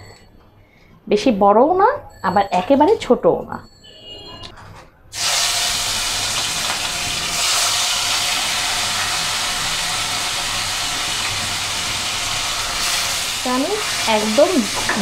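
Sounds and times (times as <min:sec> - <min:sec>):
fish sizzling in hot oil: 0:05.2 - 0:15.0.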